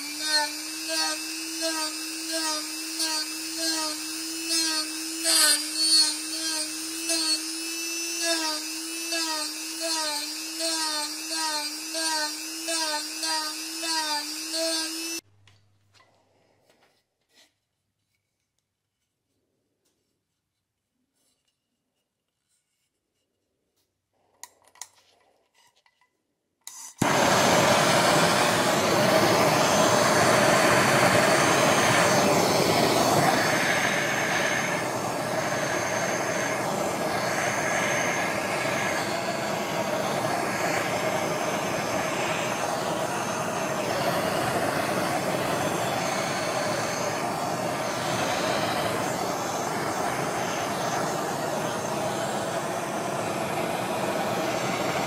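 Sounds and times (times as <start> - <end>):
blowtorch flame hissing: 0.0 - 15.2, 27.0 - 55.0.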